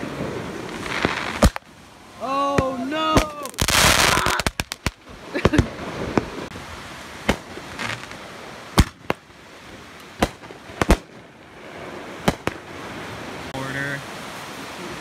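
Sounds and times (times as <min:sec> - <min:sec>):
low steady hiss: 0:00.0 - 0:15.0
fireworks pops and bangs: 0:00.6 - 0:01.7, 0:02.5 - 0:06.5, 0:07.2 - 0:09.3, 0:10.0 - 0:12.7.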